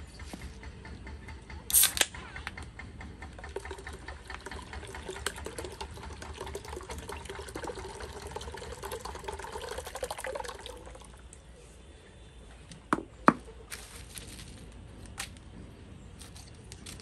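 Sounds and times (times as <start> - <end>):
liquid pouring into container: 3.4 - 11.3.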